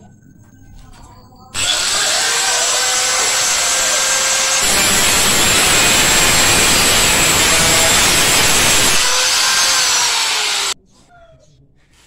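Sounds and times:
angle grinder motor whine: 1.6s - 10.8s
grinder cutting sheet steel: 1.6s - 10.8s.

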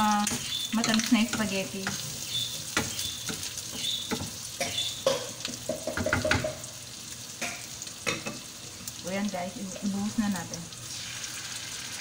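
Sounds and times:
meat sizzling in frying pan: 0.0s - 12.0s.

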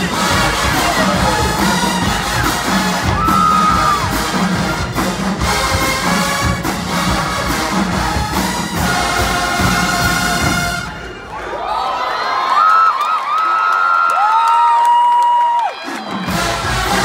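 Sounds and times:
drumline beat: 0.0s - 11.1s, 15.8s - 17.0s
brass instruments playing: 0.0s - 11.2s, 15.9s - 17.0s.

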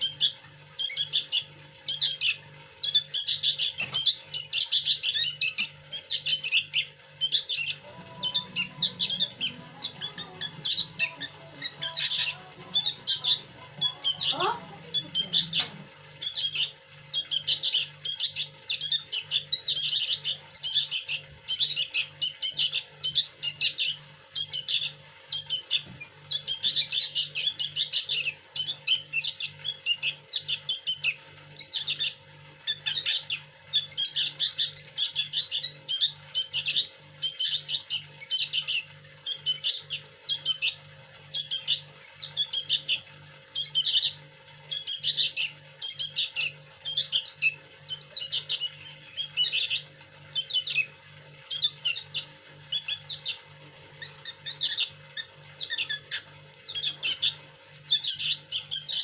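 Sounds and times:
fledgling birds chirping: 0.0s - 59.0s.

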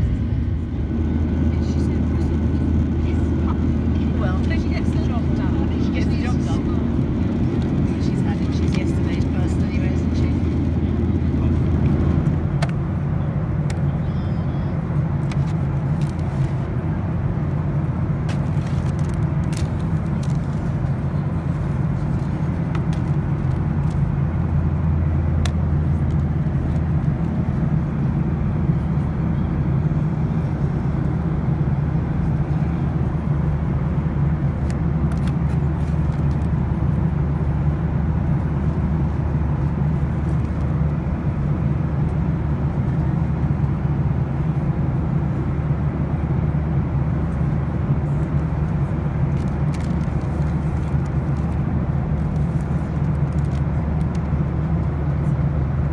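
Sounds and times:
aircraft cabin engine drone: 0.0s - 55.9s
faint clicks and rustles: 18.3s - 24.1s, 48.1s - 54.9s.

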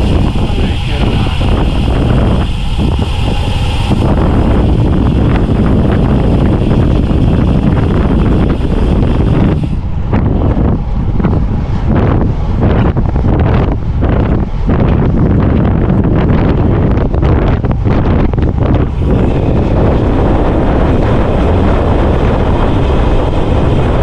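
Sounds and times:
high hiss: 0.0s - 9.9s
wind buffeting microphone: 0.0s - 24.0s.

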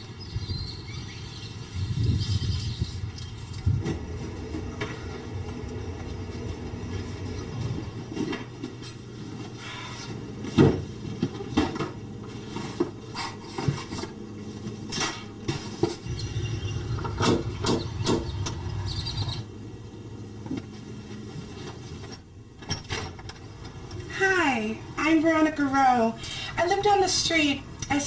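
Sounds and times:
steady low hum: 0.0s - 28.0s
household knocks and clatter: 10.4s - 12.0s.

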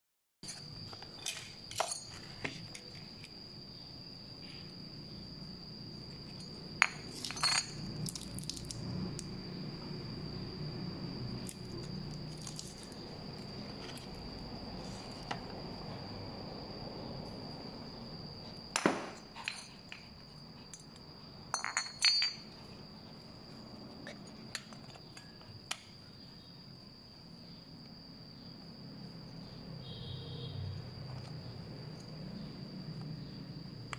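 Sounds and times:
metal parts clinking on stone: 0.5s - 2.9s, 6.3s - 8.8s, 18.8s - 22.6s.

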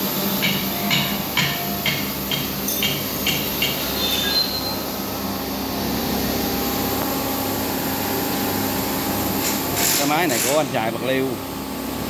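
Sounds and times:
steady workshop hum: 0.0s - 12.0s
hammer clanging on metal: 0.4s - 3.9s.

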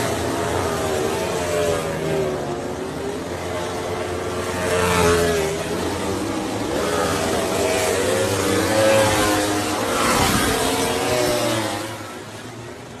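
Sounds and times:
racing motorcycle engines revving: 0.0s - 13.0s.

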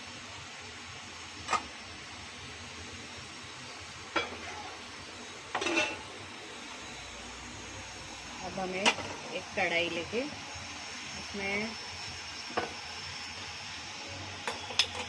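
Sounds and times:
metal dishes clinking: 5.6s - 6.0s.

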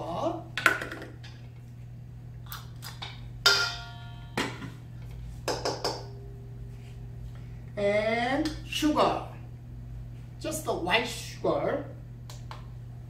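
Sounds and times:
steady low hum: 0.0s - 13.0s
ringing metallic strike: 3.4s - 4.6s, 6.0s - 6.6s.

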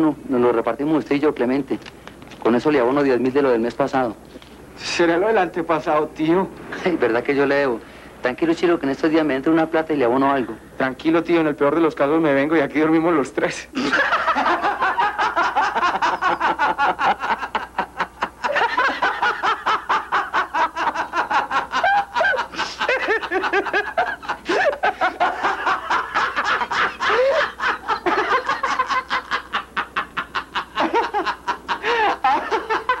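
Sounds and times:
men laughing heartily: 13.8s - 33.0s.

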